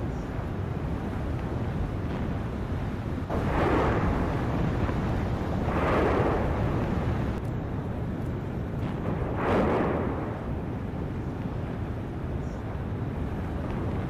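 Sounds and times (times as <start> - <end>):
low outdoor rumble: 0.0 - 14.0
rushing swells: 3.3 - 7.4, 9.0 - 12.2.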